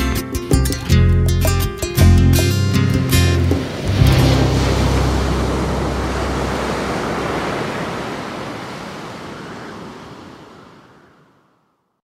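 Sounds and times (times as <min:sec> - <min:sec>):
rushing surf-like noise: 0:03.1 - 0:11.6.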